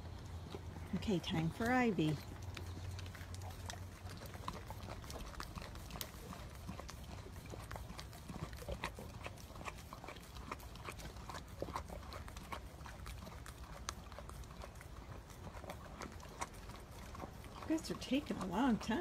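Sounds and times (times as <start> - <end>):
dog licking ice cream: 0.0 - 19.0.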